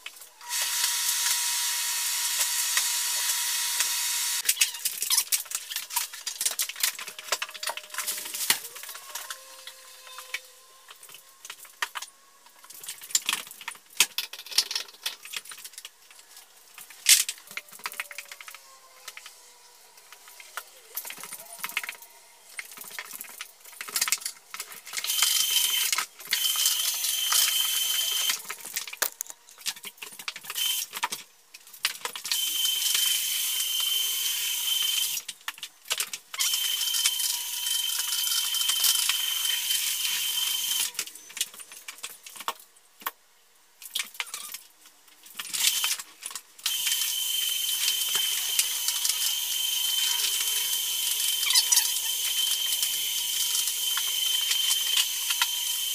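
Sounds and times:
floor buffer motor whine: 0.4s - 4.4s, 25.1s - 28.5s, 32.3s - 35.2s, 46.7s - 55.9s.

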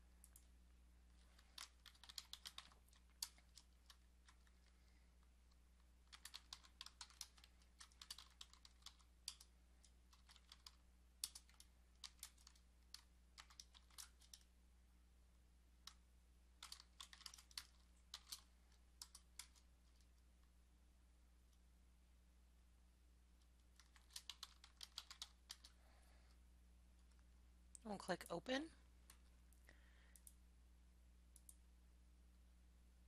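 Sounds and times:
faint low hum: 0.0s - 33.0s
typing on computer keyboard: 1.3s - 4.8s, 6.0s - 14.5s, 16.6s - 20.2s, 23.7s - 25.8s.

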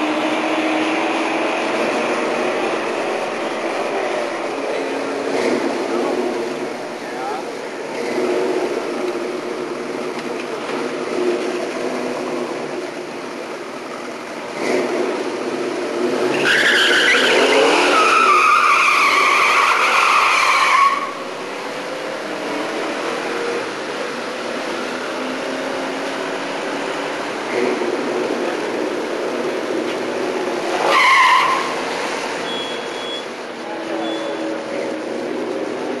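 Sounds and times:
tyres squealing: 16.3s - 21.2s, 30.6s - 34.6s.

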